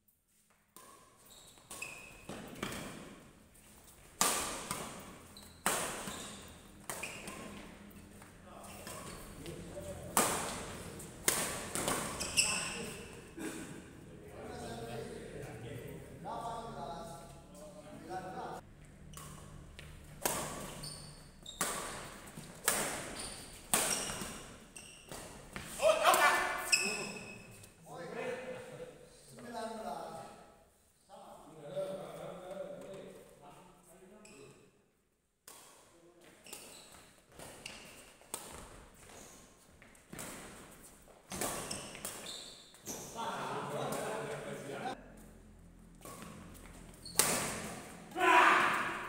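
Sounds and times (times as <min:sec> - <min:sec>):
badminton rackets hitting shuttlecock: 0:00.7 - 0:03.2, 0:04.0 - 0:07.8, 0:10.0 - 0:13.0, 0:18.9 - 0:27.4, 0:35.4 - 0:39.2, 0:39.8 - 0:43.0, 0:46.0 - 0:49.0.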